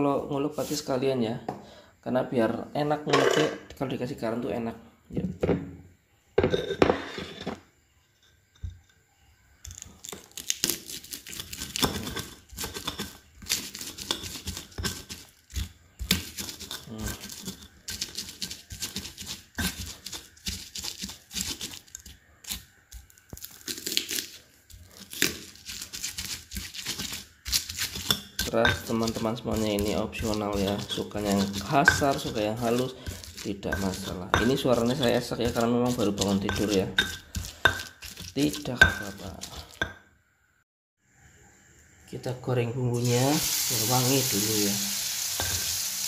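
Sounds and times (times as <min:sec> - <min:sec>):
stone pestle crushing in mortar: 0:09.6 - 0:40.0.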